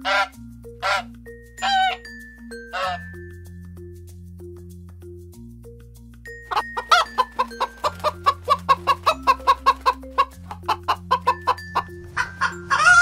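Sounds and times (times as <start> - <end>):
hen clucking: 0.0 - 2.0, 2.7 - 3.0, 6.5 - 13.0
soft background music: 0.0 - 13.0.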